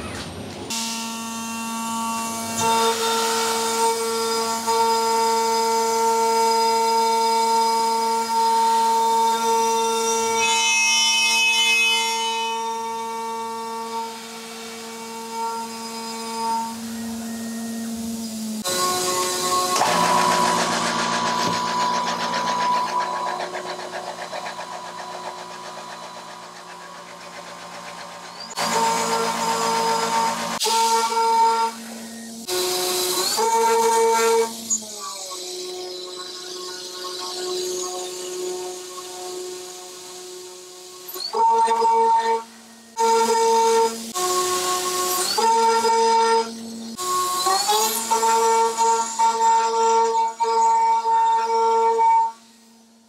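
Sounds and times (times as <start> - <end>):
milling machine cutting whine: 0.0 - 52.5
milling spindle whine: 7.8 - 33.4
rapid cutter chatter: 18.9 - 30.6.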